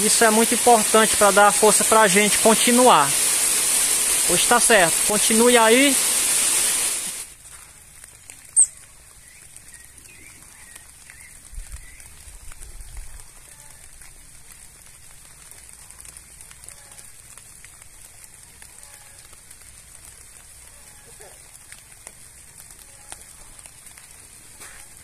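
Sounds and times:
heavy rain hiss: 0:00.0 - 0:25.0
bird chirps: 0:08.5 - 0:12.0.

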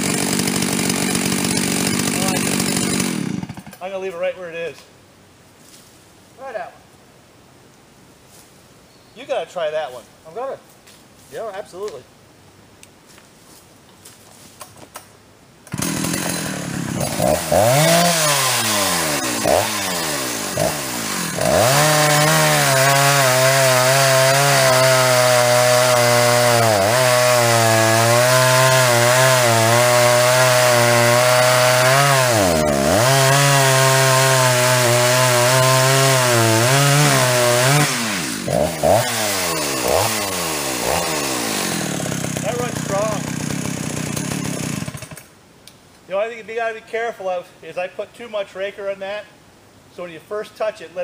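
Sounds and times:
chainsaw cutting log: 0:00.0 - 0:04.0, 0:15.6 - 0:45.3.

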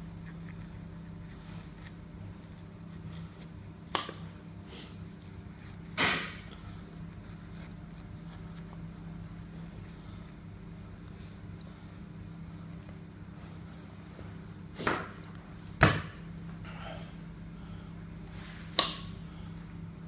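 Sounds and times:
steady low hum: 0:00.0 - 0:20.0
knocks on a cutting board: 0:15.8 - 0:16.2.

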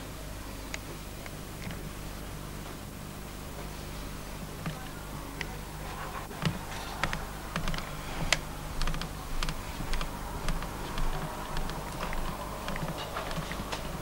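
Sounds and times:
steady low hum: 0:00.0 - 0:14.0
keyboard keystrokes clicking: 0:06.4 - 0:14.0.

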